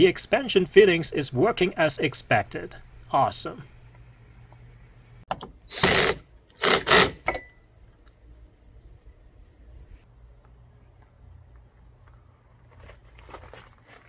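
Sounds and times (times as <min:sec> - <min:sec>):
cordless drill driving screw: 0:05.7 - 0:07.2.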